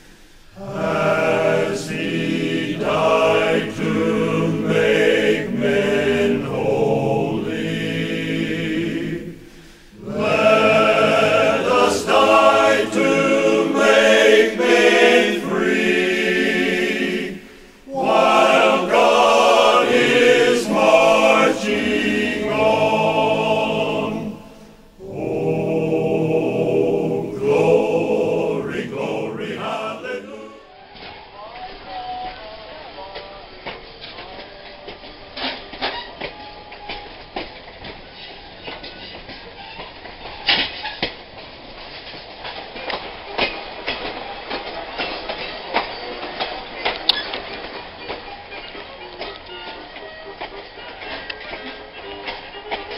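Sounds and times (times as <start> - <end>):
choir singing: 0.5 - 30.8.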